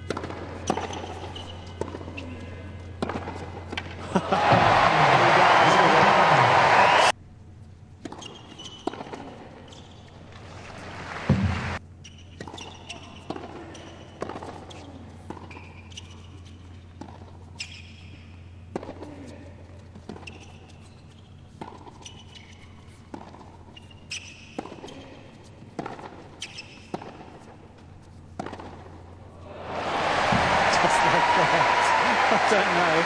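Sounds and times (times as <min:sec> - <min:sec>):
ball bouncing on court: 0:00.0 - 0:02.1, 0:11.2 - 0:11.8, 0:28.4 - 0:28.9, 0:30.0 - 0:31.0
shoes squeaking on court: 0:00.0 - 0:04.0, 0:08.0 - 0:10.9, 0:11.9 - 0:29.3
racket hitting tennis ball: 0:28.3 - 0:29.0, 0:29.7 - 0:31.1.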